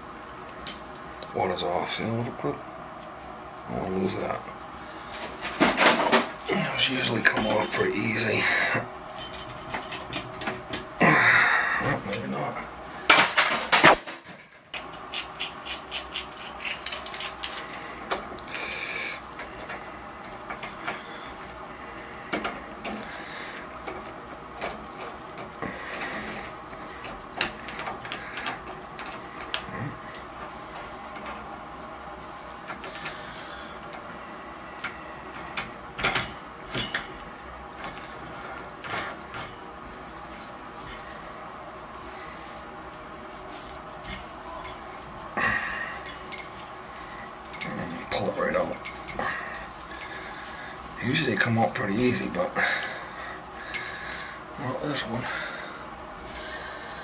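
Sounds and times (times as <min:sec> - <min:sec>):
hand tools clicking and scraping on metal: 0:14.7 - 0:21.6, 0:22.3 - 0:31.8, 0:47.4 - 0:53.0.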